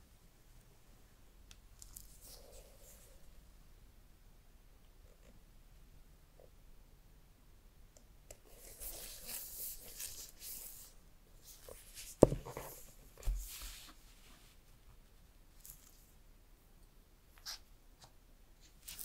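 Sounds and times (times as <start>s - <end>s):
box knocking on table: 12.2s - 12.5s.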